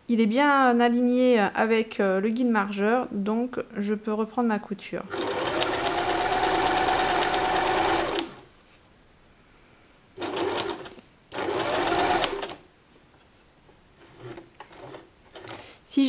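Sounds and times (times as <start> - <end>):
electric sewing machine stitching: 5.1 - 8.5, 10.2 - 12.6, 14.1 - 15.6.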